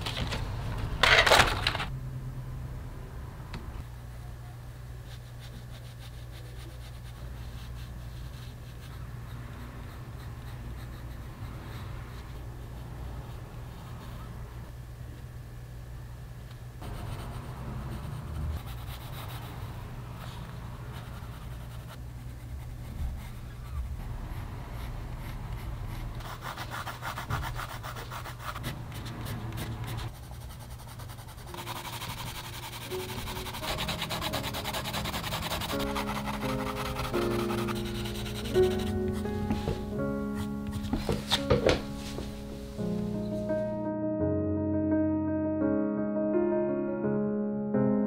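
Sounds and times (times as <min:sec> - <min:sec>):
pencil scratching on paper: 0:16.8 - 0:41.8
soft music: 0:31.4 - 0:48.0.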